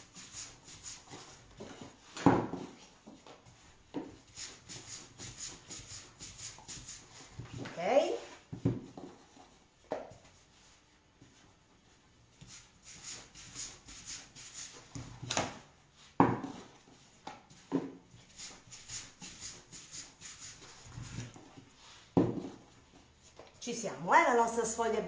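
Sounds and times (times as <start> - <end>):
rolling pin rubbing on dough: 3.5 - 7.6, 17.5 - 22.7.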